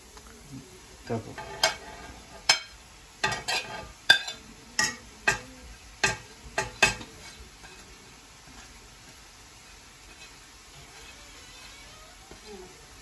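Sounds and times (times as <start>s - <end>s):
spoon knocking on plate and pan: 1.4s - 7.8s.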